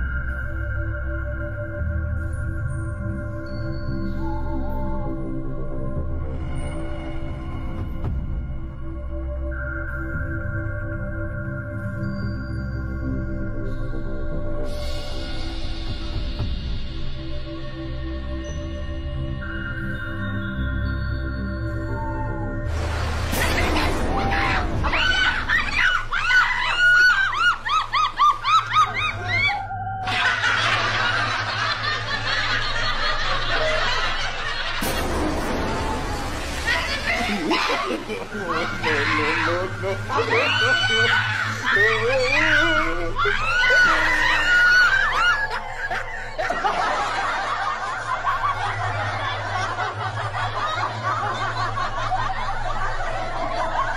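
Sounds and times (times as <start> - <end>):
high-pitched cackling laughter: 23.4 - 35.0, 36.6 - 53.9.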